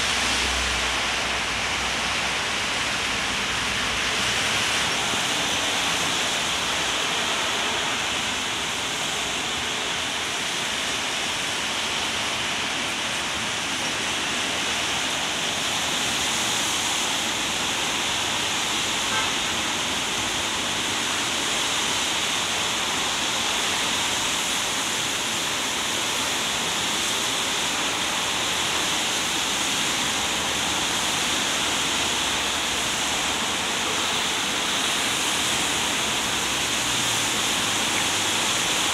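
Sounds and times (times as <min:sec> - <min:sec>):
rain falling on wet pavement: 0:00.0 - 0:38.9
traffic swishing on wet road: 0:00.0 - 0:38.9.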